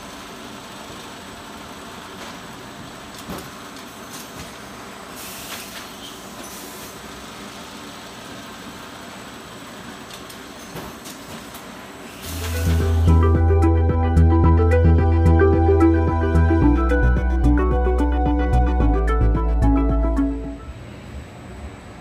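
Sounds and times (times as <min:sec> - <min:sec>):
blower and conveyor noise: 0:00.0 - 0:13.1
brief hiss: 0:05.1 - 0:07.0, 0:12.0 - 0:13.0.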